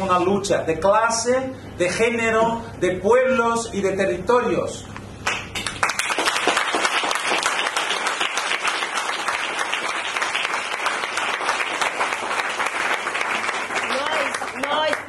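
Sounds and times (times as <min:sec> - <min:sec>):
audience applauding: 0:05.3 - 0:15.0.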